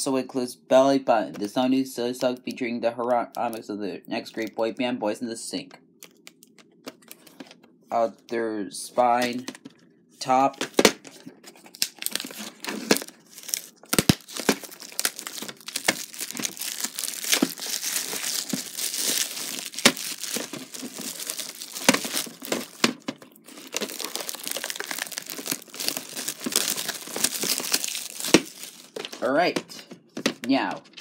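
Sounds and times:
plastic shrink-wrap tearing and crinkling: 0:11.6 - 0:29.2.

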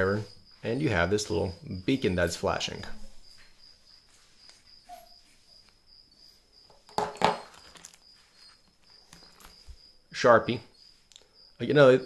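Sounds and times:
cricket chirping: 0:00.0 - 0:12.0
sharp handling knocks: 0:06.8 - 0:08.0.

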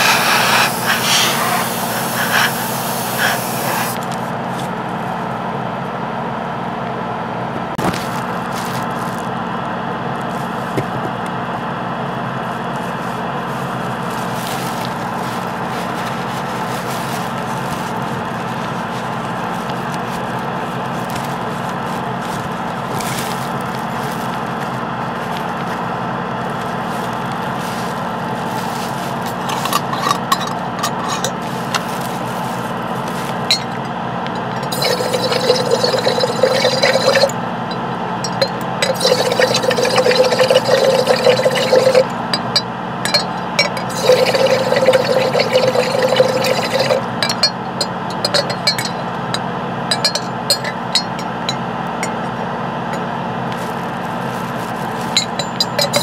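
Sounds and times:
airbrush air bursts sputtering: 0:00.0 - 0:04.0
air compressor humming: 0:00.0 - 0:05.4, 0:07.5 - 0:56.0
tools clinking and scraping: 0:26.9 - 0:56.0.

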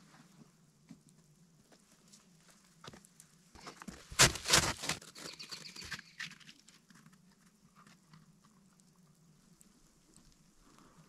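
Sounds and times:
dog paws scrabbling over frosty log: 0:02.9 - 0:08.1.

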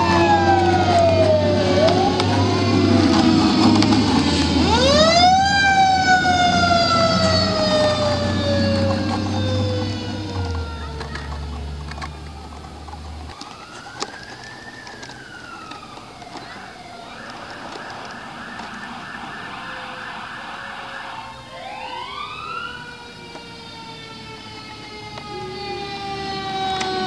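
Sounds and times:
heavy engine rumble: 0:00.0 - 0:13.9
electronic siren wailing and yelping: 0:00.0 - 0:27.0
mechanical siren falling tone: 0:00.0 - 0:27.0.

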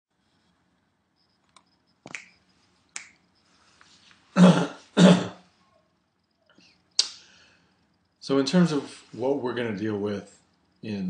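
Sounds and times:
person clearing throat: 0:04.4 - 0:05.4.

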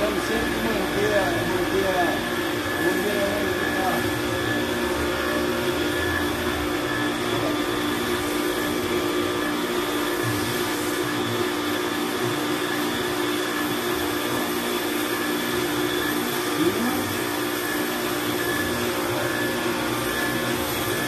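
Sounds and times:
pressure washer motor whining: 0:00.0 - 0:21.0
water jet spraying on car: 0:07.6 - 0:19.0.

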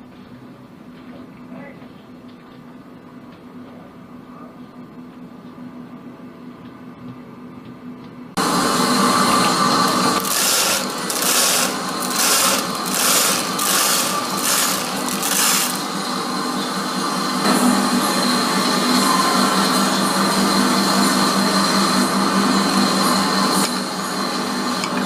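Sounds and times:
model train rolling past: 0:08.4 - 0:24.9.

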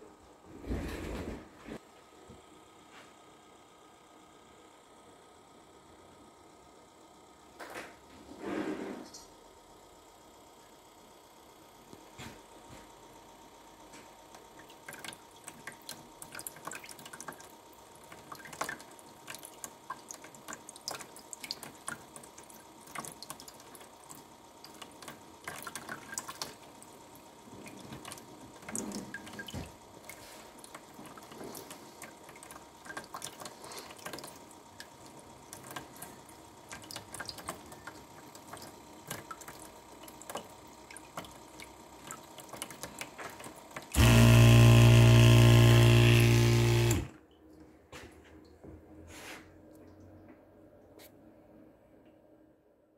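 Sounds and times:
water dripping into plastic tub: 0:28.0 - 0:36.1, 0:36.7 - 0:46.2.

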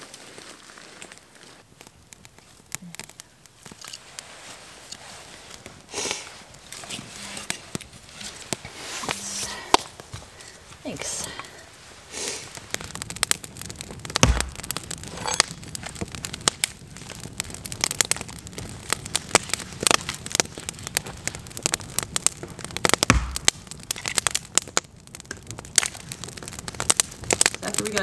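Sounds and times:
campfire crackling: 0:00.0 - 0:28.0
sharp pops and snaps: 0:00.9 - 0:28.0
low thumps: 0:14.0 - 0:15.0, 0:23.0 - 0:23.7.

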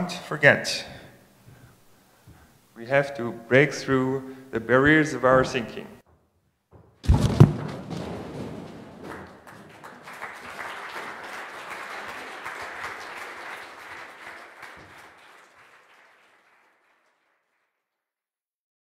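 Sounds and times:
cardboard boxes crashing: 0:07.0 - 0:09.7
audience applauding: 0:08.7 - 0:17.7.

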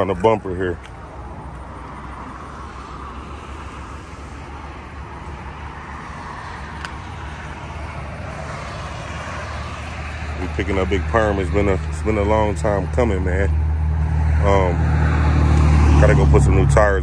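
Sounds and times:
traffic hum: 0:00.0 - 0:17.0.

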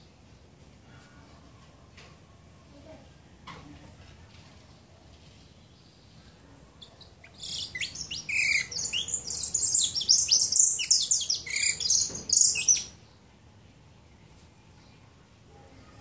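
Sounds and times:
finch singing high chirps: 0:06.8 - 0:13.0.

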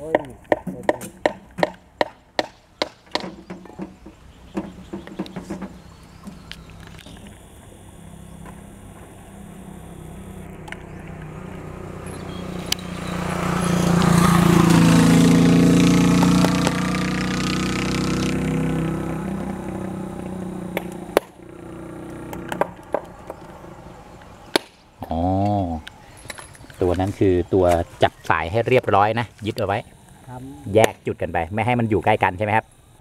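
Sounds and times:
sharp clicks: 0:04.6 - 0:07.5, 0:10.0 - 0:11.4, 0:19.4 - 0:21.4
vehicle engine passing by: 0:10.3 - 0:24.5.

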